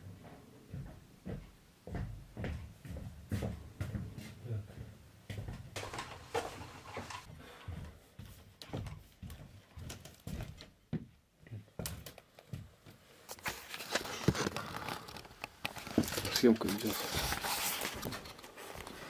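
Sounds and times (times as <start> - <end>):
footsteps: 0.0 - 19.0
knocks and rustles: 5.4 - 7.3.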